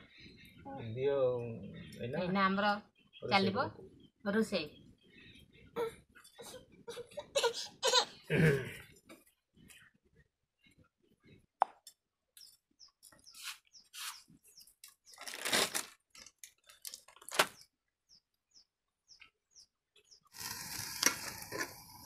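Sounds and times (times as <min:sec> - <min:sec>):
small bird chirping: 0:00.0 - 0:07.0, 0:12.2 - 0:15.6, 0:17.5 - 0:20.4
plastic packet crinkling: 0:15.1 - 0:17.6
vegetables sizzling in a pot: 0:20.4 - 0:22.0.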